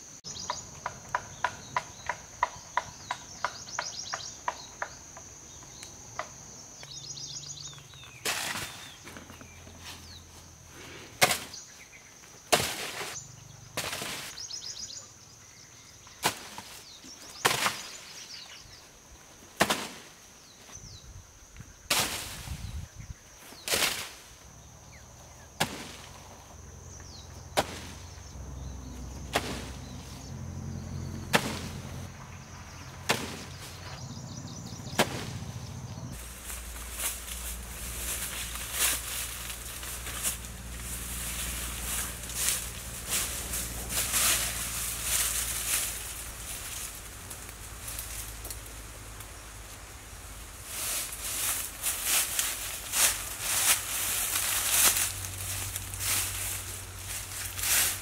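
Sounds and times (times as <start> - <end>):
high insect drone: 0.0 - 58.0
rustling in dry bamboo leaves: 7.2 - 15.1, 15.9 - 34.2, 36.1 - 58.0
spear striking banana trunks: 8.1 - 9.1, 11.2 - 11.7, 12.5 - 13.2, 13.8 - 14.4, 16.2 - 16.8, 17.4 - 18.1, 19.6 - 20.2, 21.9 - 22.5, 23.6 - 24.2, 25.6 - 26.2, 27.5 - 28.2, 29.1 - 30.1, 31.3 - 32.0, 33.0 - 34.0, 34.9 - 35.5.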